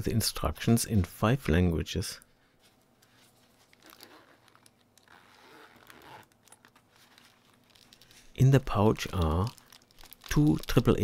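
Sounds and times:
rustling handling noise: 0:02.2 - 0:11.0
pouch being unzipped: 0:03.3 - 0:11.0.

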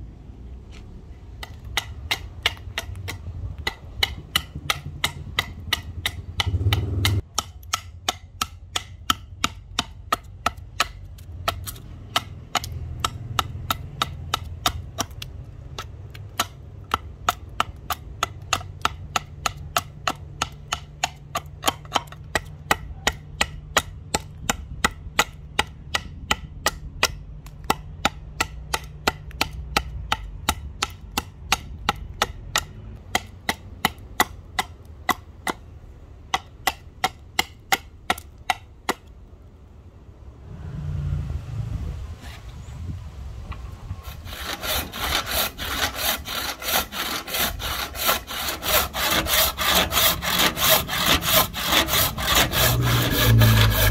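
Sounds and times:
machete chopping wood: 0:01.3 - 0:35.6.

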